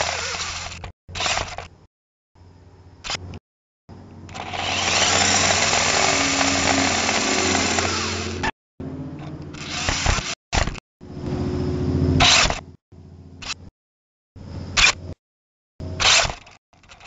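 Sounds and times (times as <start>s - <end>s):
small electric motors whining: 0.0s - 1.8s, 4.0s - 11.5s.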